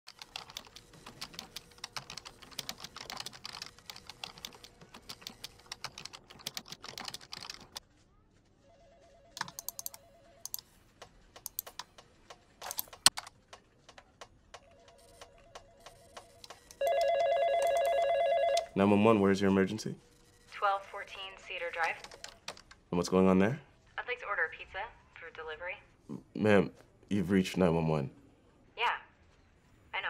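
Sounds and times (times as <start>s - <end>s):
keyboard typing: 0.1s - 7.8s, 9.4s - 18.7s, 21.7s - 22.8s
warbling telephone ring: 15.0s - 18.8s.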